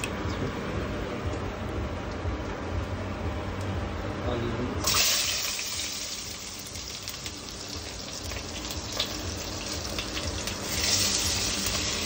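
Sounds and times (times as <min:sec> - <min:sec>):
onions sizzling in oil: 0:04.8 - 0:12.0.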